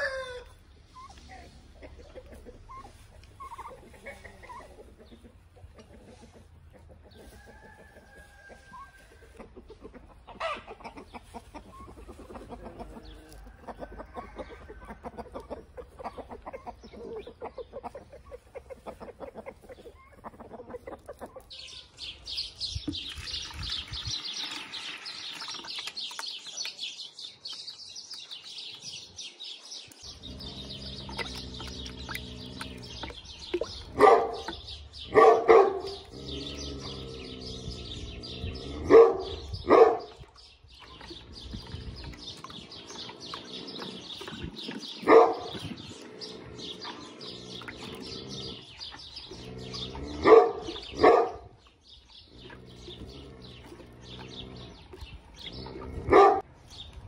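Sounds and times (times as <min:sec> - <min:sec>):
birds chirping: 0:00.0 - 0:57.0
dog barking: 0:34.0 - 0:36.0, 0:38.9 - 0:40.1, 0:45.1 - 0:45.6, 0:50.2 - 0:51.5, 0:56.1 - 0:56.4.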